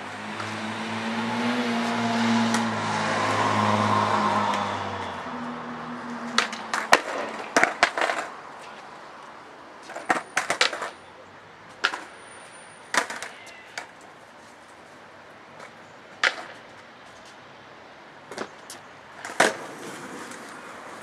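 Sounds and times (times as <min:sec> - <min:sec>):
car passing: 0:00.0 - 0:11.0, 0:19.2 - 0:21.0
skateboard clacking on concrete: 0:06.2 - 0:11.1, 0:11.7 - 0:12.2, 0:12.9 - 0:14.2, 0:15.6 - 0:16.9, 0:18.2 - 0:21.0.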